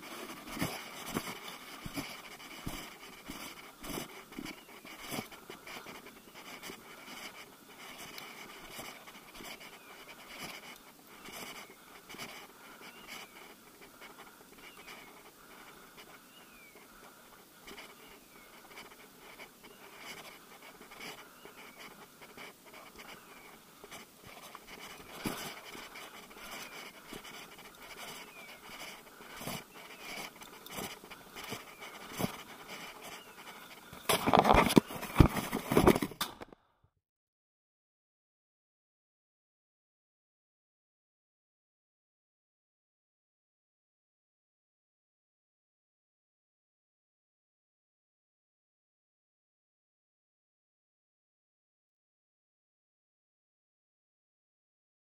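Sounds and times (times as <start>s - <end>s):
panting breath: 0.0s - 34.2s
loud rustling: 18.5s - 36.2s.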